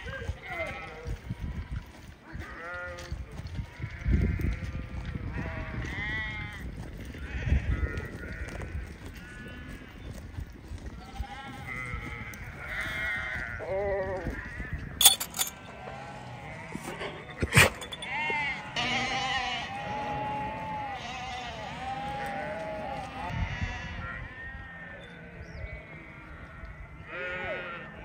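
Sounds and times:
sheep bleating: 11.0 - 14.7, 15.7 - 25.2, 25.8 - 28.0.

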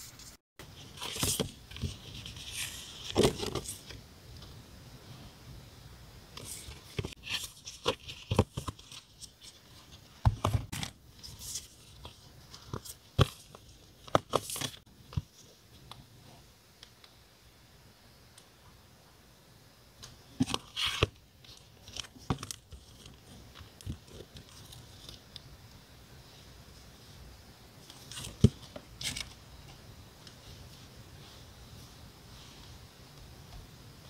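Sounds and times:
paper rustling: 0.0 - 4.0, 6.4 - 15.2.

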